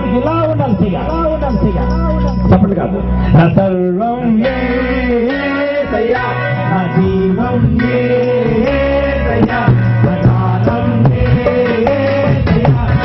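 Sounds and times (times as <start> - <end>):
instrumental accompaniment: 0.0 - 13.0
person singing worship song: 3.2 - 13.0.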